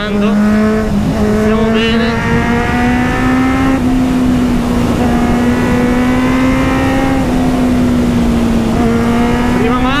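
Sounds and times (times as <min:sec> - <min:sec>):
motorcycle engine under throttle: 0:00.0 - 0:10.0
wind rush: 0:00.0 - 0:10.0.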